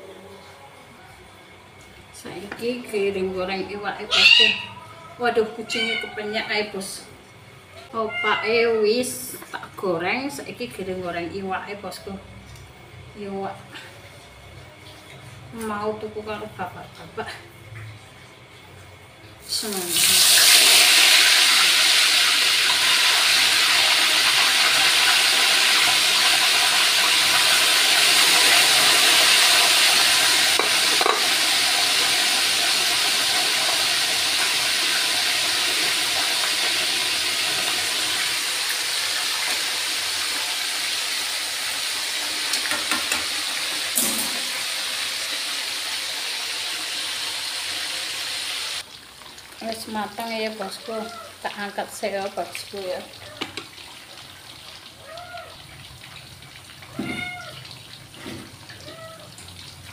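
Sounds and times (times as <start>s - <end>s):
fish sizzling in hot oil: 19.4s - 59.9s.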